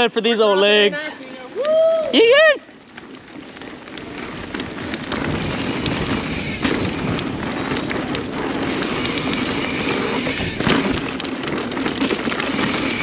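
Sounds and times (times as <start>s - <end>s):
bike tyres on dirt trail: 0.0s - 13.0s.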